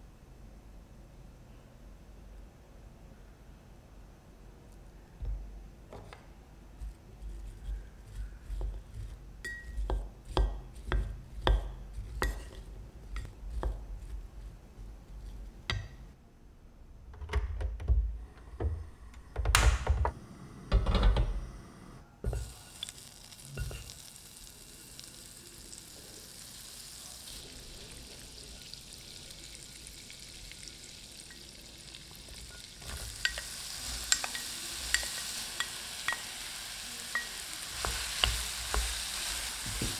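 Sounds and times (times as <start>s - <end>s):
apple sizzling in hot pan: 7.2s - 15.5s, 22.3s - 39.9s
gas burner hissing: 18.2s - 39.9s.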